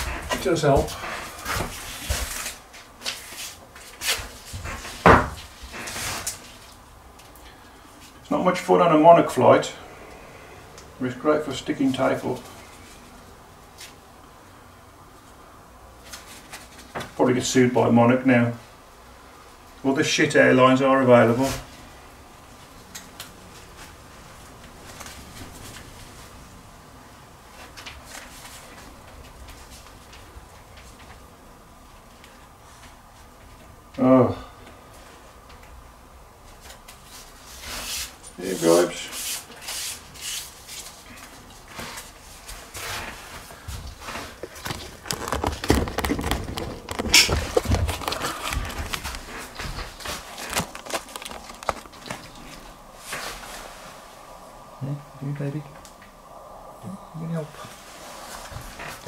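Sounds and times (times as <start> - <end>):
tape rustling: 0.0 - 8.2, 36.5 - 53.8.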